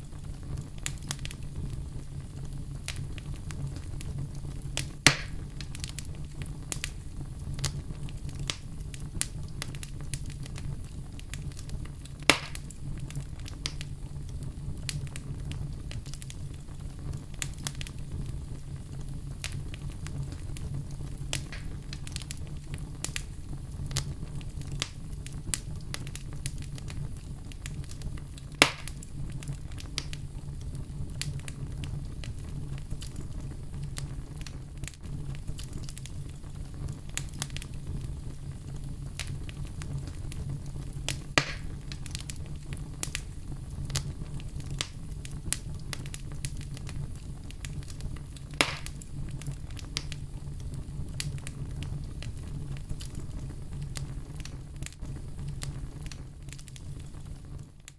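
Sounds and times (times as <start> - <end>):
logs crackling in fireplace: 0.0 - 57.9
sharp loud pops: 5.1 - 5.4, 12.3 - 12.6, 28.6 - 28.9, 41.4 - 41.7, 48.6 - 48.9.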